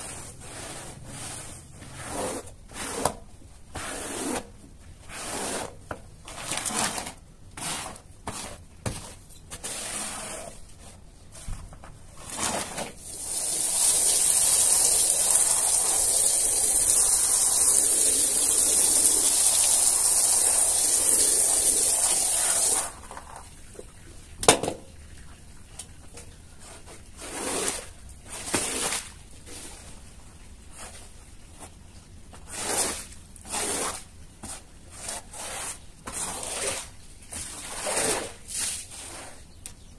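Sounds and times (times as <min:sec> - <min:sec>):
squeegee dragged across wet carpet: 0:00.0 - 0:03.1, 0:05.1 - 0:05.7, 0:09.6 - 0:11.0, 0:12.3 - 0:23.0, 0:26.6 - 0:29.9, 0:32.4 - 0:39.4
hose spraying water: 0:13.0 - 0:23.0.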